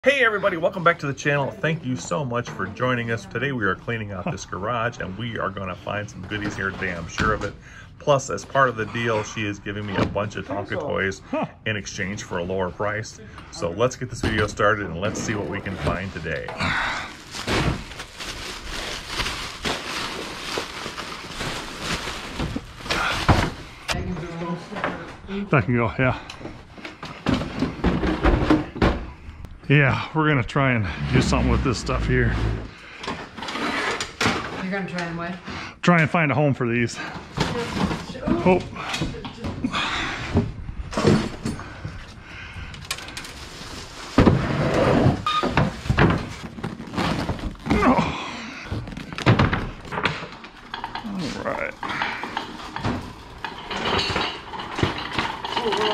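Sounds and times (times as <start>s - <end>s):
plastic garbage bag crinkling: 15.6s - 23.8s, 42.8s - 48.1s, 48.7s - 50.0s
sharp plastic crackle: 17.0s - 23.6s
cabinet scraping into truck: 30.8s - 32.7s.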